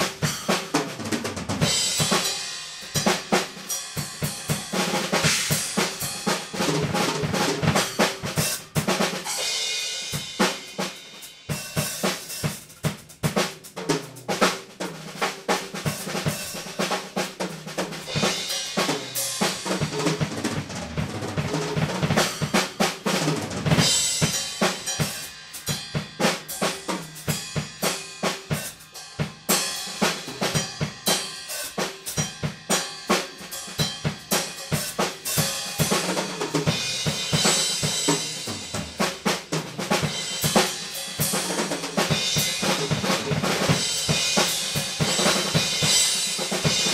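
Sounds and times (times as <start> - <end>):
drum kit playing: 0.0 - 46.9
crashing cymbals: 23.8 - 39.0.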